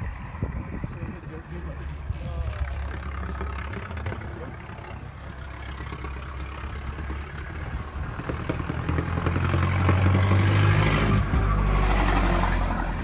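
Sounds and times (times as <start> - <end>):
old car engine clattering: 2.6 - 10.1.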